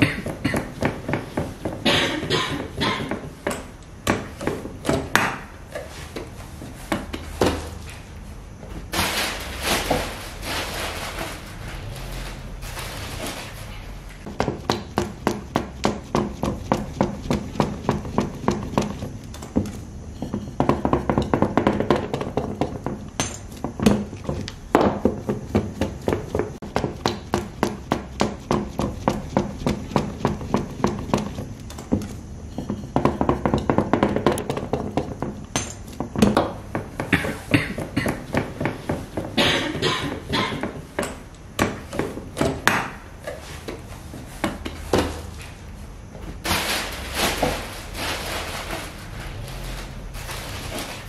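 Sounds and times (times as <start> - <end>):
hands patting dough: 14.2 - 45.7.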